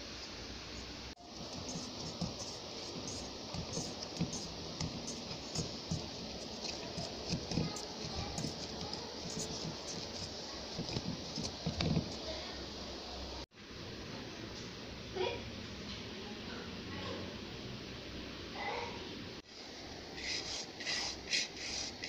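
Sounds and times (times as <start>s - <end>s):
steady hiss: 0.0s - 13.9s.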